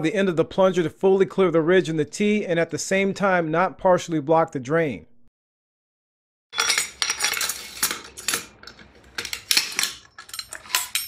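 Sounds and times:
brass drain parts clinking: 6.5 - 11.0.

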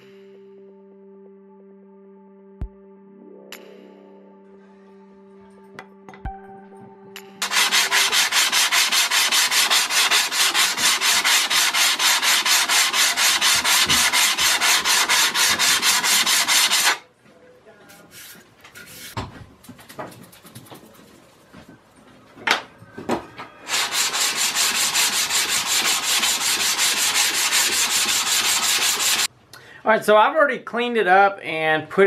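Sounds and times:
brush sweeping metal dust: 7.4 - 17.0, 18.0 - 19.2, 23.7 - 29.3
metal scraping on sandpaper: 7.4 - 17.0, 18.1 - 19.2, 23.7 - 29.3.

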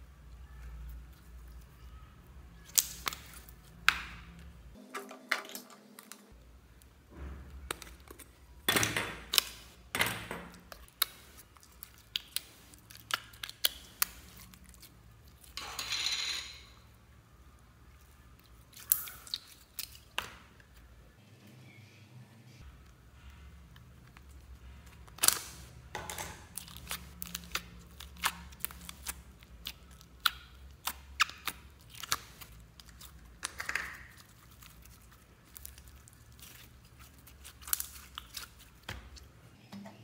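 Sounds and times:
slime squelching: 0.3 - 4.6, 5.4 - 15.6, 17.4 - 21.0, 22.7 - 39.4.

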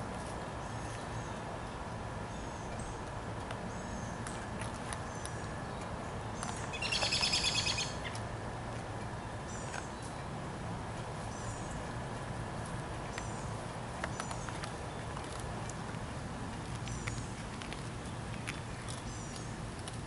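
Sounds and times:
outdoor background noise: 0.0 - 20.0
birds chirping: 0.6 - 8.2.

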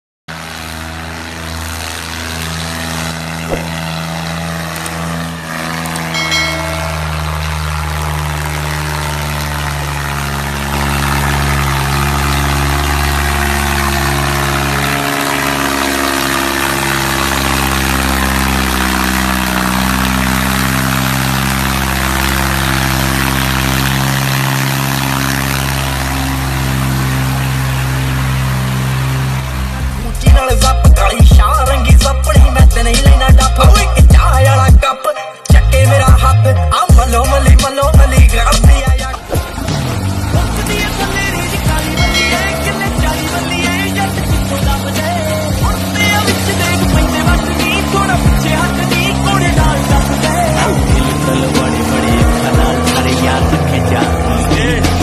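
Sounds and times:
tractor diesel engine running: 0.3 - 34.8, 35.5 - 55.0
short knock: 3.5 - 3.9
high chime: 6.1 - 8.6, 41.9 - 43.5.

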